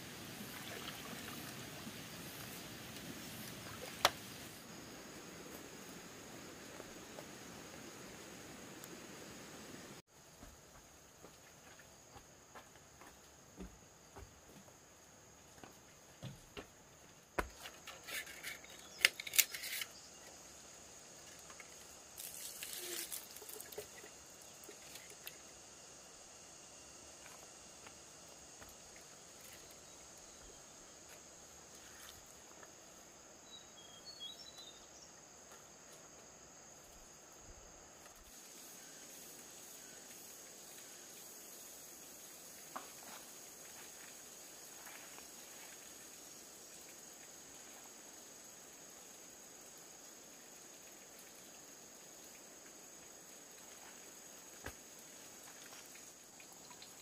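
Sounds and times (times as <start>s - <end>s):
high insect drone: 0.0s - 57.0s
brief rustle: 17.7s - 20.0s.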